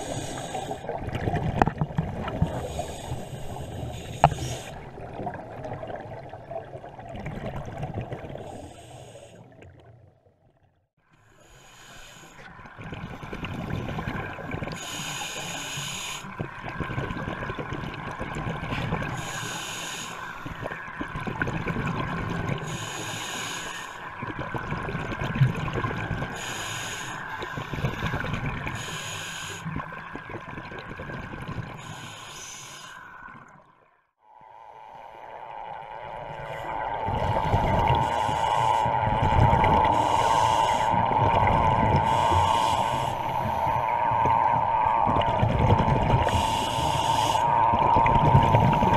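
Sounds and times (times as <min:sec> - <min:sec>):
regulator hissing inhalation: 0:00.0 - 0:00.8, 0:02.5 - 0:04.8, 0:11.4 - 0:12.4, 0:14.8 - 0:16.3, 0:19.2 - 0:20.4, 0:22.7 - 0:24.0, 0:26.4 - 0:28.1, 0:28.8 - 0:29.7, 0:31.8 - 0:33.1, 0:36.4 - 0:45.2, 0:46.2 - 0:48.9
gurgle of exhaled bubbles: 0:00.0 - 0:10.2, 0:16.4 - 0:19.4, 0:20.5 - 0:23.5, 0:24.1 - 0:29.0, 0:29.6 - 0:32.0, 0:34.6 - 0:48.9.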